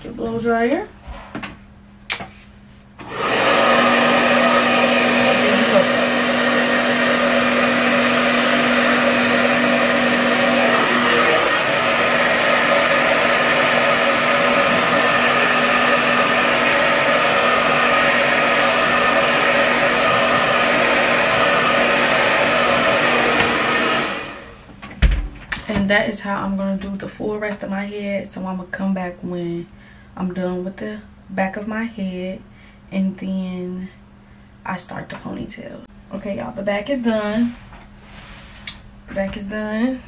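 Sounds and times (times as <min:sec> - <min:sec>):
hair dryer blowing: 0:03.0 - 0:24.7.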